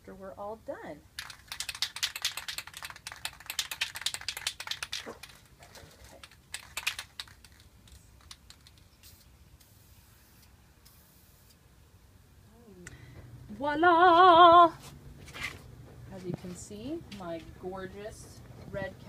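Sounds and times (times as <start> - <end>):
spray can mixing ball rattling: 1.1 - 11.3.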